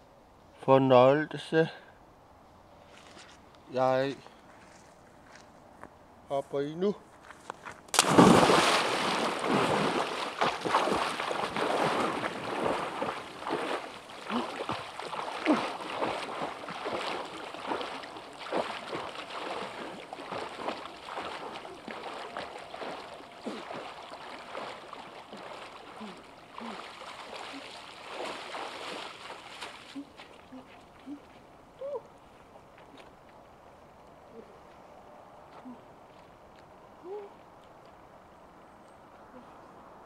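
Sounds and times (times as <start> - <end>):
person jumping into water: 7.9 - 31.4
water splashing and sloshing: 7.9 - 33.9.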